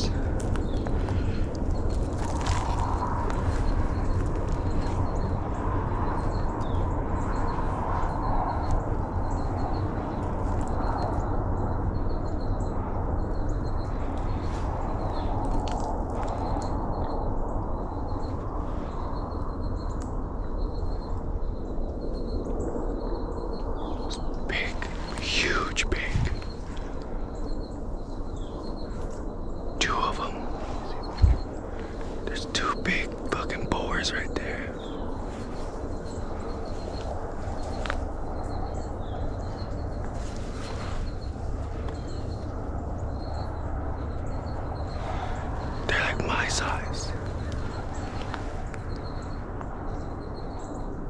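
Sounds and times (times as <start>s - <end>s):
steady low rumble: 0.0s - 51.0s
small bird chirping: 20.6s - 50.9s.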